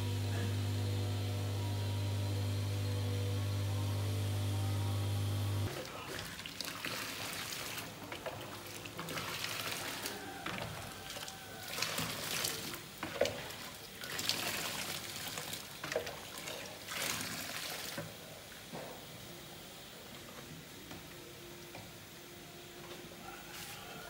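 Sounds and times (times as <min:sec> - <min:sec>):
water poured into metal basin: 0:05.7 - 0:18.0.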